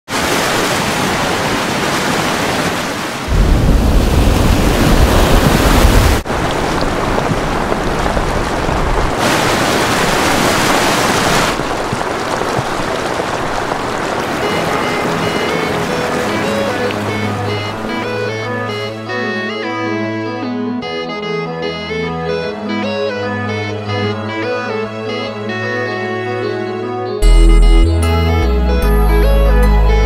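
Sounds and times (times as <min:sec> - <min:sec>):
floodwater rushing: 0:00.1 - 0:19.2.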